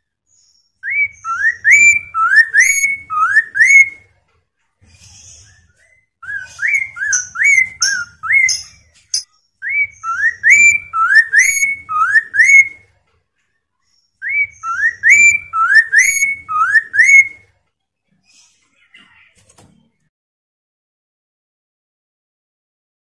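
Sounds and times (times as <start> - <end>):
bird singing whistled notes: 0.3 - 4.0, 5.4 - 12.8, 14.0 - 17.4.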